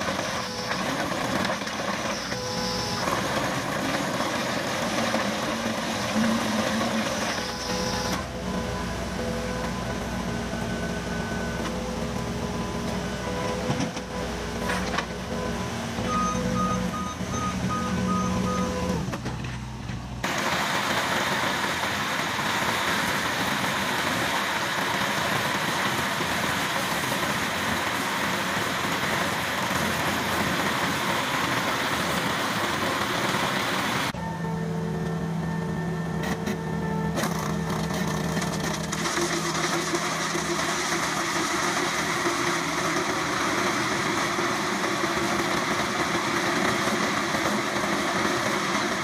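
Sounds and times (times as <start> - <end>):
cutter drum cutting asphalt: 0.0 - 34.2, 36.2 - 49.0
diesel engine running: 0.0 - 49.0
short beeps: 2.1 - 3.2, 7.3 - 9.9, 15.4 - 19.0.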